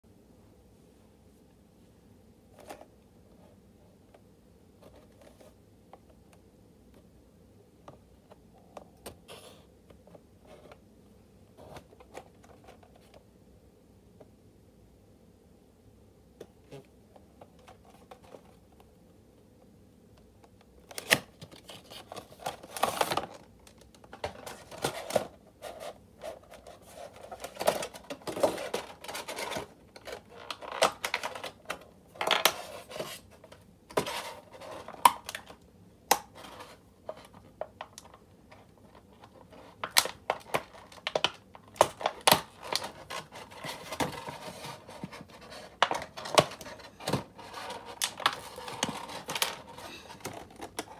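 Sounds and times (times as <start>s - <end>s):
hard plastic packaging crackling: 20.8s - 50.9s.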